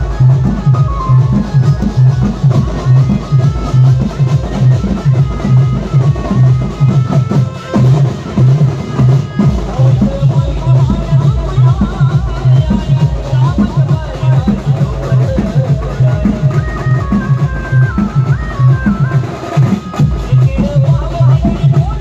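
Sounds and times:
banjo band music: 0.0s - 22.0s
heavy bass drum beat: 0.0s - 22.0s.

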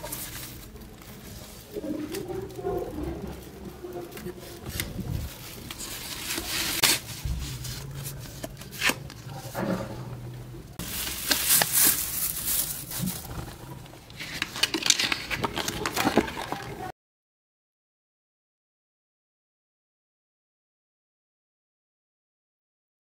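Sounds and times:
paper rustling and crinkling: 0.0s - 10.0s, 10.8s - 16.9s.

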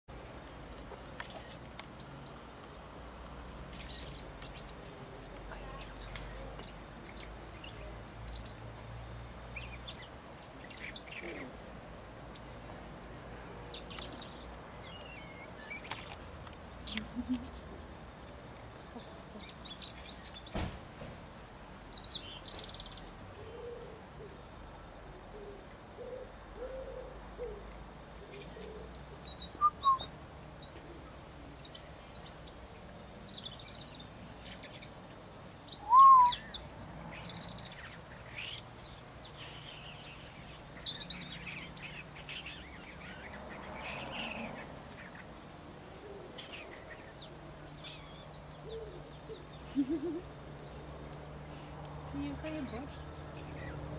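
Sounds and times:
robin singing: 0.1s - 53.9s
short low bird notes: 35.8s - 36.5s.

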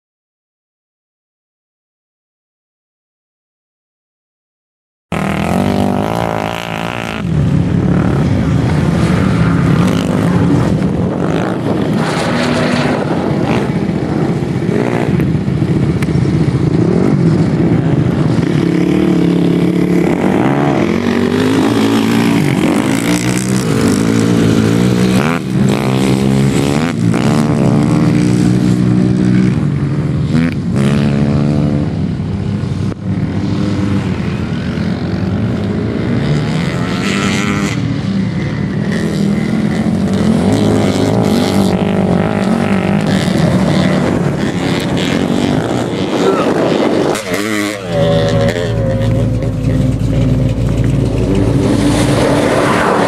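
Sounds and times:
off-road engines revving: 5.1s - 53.0s.

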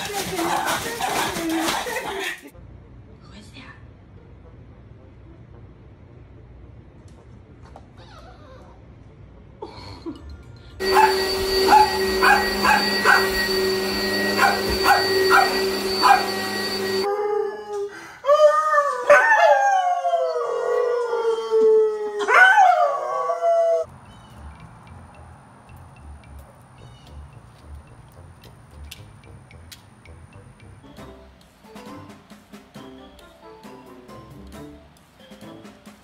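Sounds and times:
upright vacuum cleaner whine: 10.8s - 17.1s
dog howling: 10.8s - 23.9s.

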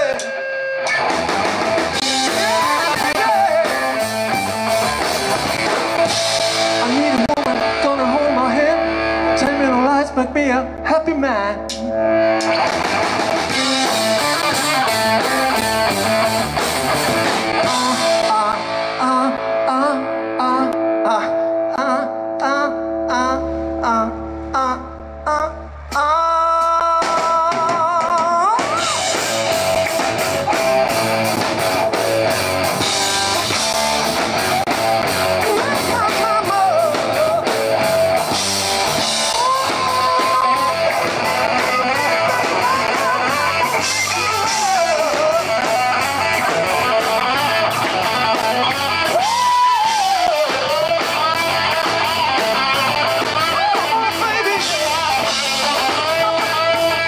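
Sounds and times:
electric guitar with string bends: 0.0s - 57.0s
live rock band playing: 0.0s - 57.0s
drum beat: 0.9s - 7.8s, 12.4s - 18.5s, 26.9s - 57.0s.

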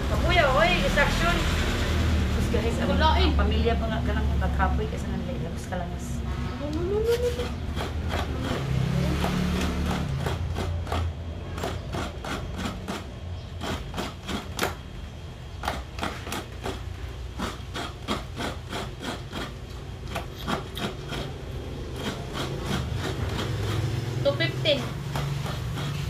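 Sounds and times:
coconut scraping on metal blade: 5.0s - 14.9s, 15.5s - 26.0s.

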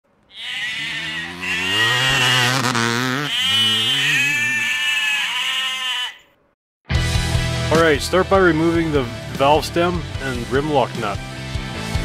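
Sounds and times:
goat bleating: 0.3s - 6.3s.

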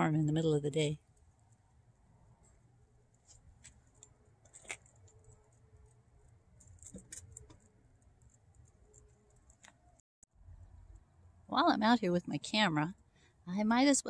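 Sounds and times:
dog claws clicking on concrete: 3.3s - 5.6s.

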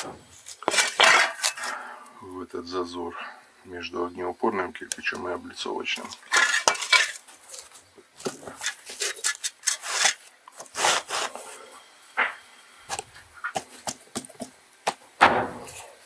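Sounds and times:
insulating board scraping against brick: 0.0s - 2.0s, 6.0s - 14.0s.

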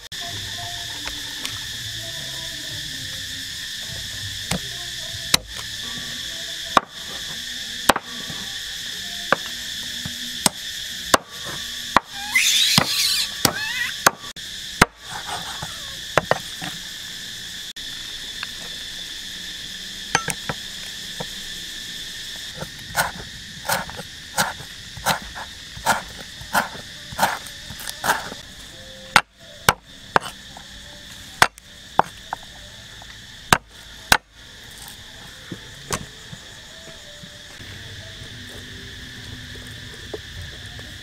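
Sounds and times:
insect chorus drone: 0.0s - 41.0s
knife chopping on wooden board: 22.6s - 28.4s.

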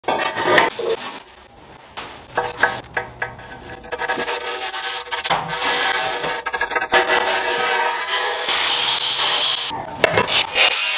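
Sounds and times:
pencil scratching along tile: 3.6s - 7.6s.

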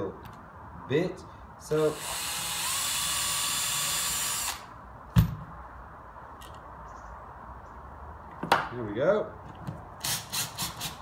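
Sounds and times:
cordless drill boring into wood: 1.8s - 4.7s.

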